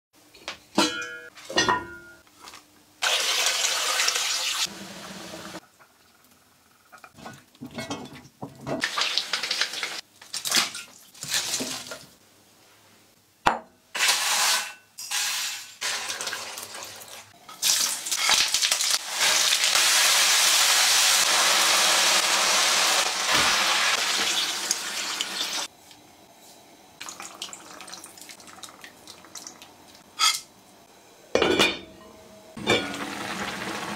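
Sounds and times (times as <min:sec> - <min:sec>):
liquid pouring: 0:27.0 - 0:30.0.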